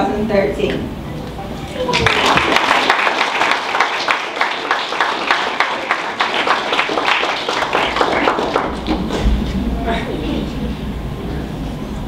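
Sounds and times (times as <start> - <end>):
crowd applauding: 1.7 - 9.2.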